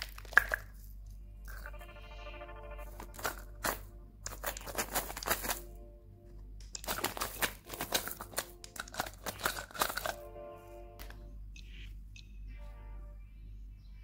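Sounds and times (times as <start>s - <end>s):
plastic packaging crackling: 0.0s - 1.8s, 2.9s - 5.7s, 6.6s - 10.2s
soft background music: 1.0s - 14.0s.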